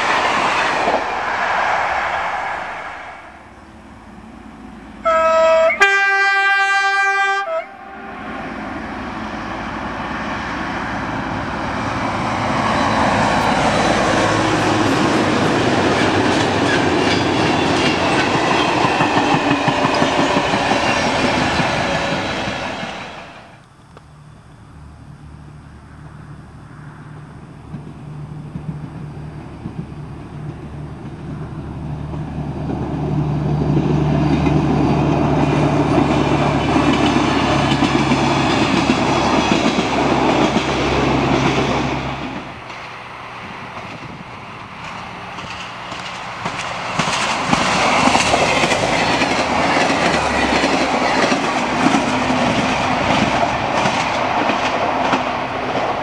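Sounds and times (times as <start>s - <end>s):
diesel railcar engine hum: 0.0s - 56.0s
train wheels clattering over rail joints: 12.6s - 22.7s, 33.6s - 42.9s, 43.7s - 55.9s.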